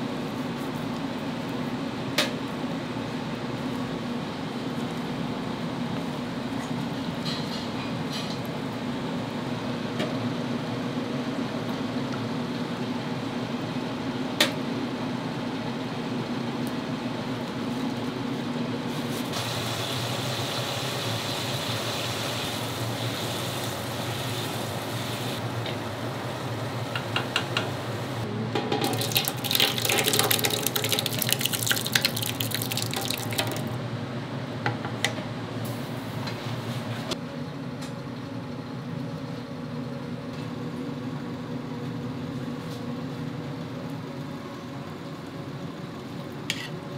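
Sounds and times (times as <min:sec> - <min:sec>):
steady background hum: 0:00.0 - 0:19.4, 0:21.6 - 0:46.9
water running and splashing: 0:28.9 - 0:33.8.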